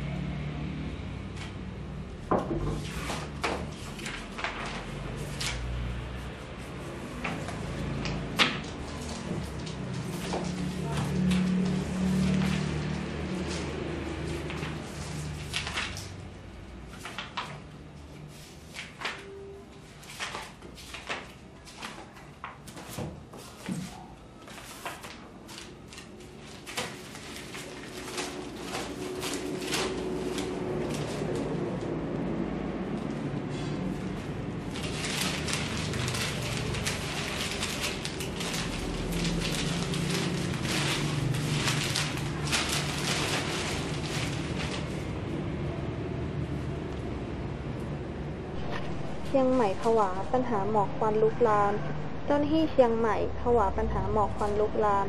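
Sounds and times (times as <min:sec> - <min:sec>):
magazine pages rustling: 0:02.8 - 0:32.0, 0:33.1 - 0:45.6
low steady hum: 0:41.6 - 0:55.0.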